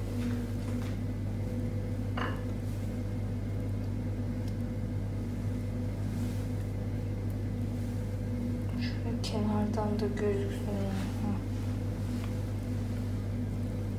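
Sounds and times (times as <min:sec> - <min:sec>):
kitchen appliance humming: 0:00.0 - 0:13.9.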